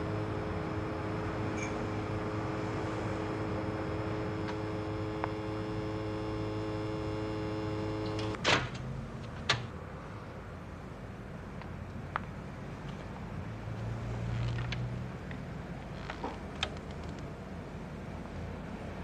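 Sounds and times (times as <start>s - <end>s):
steady hum of held tones: 0.0s - 8.4s.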